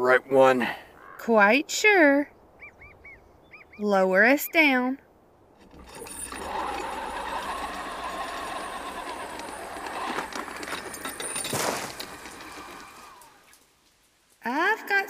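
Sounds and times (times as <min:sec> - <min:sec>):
winch clattering and creaking: 0:05.6 - 0:14.2.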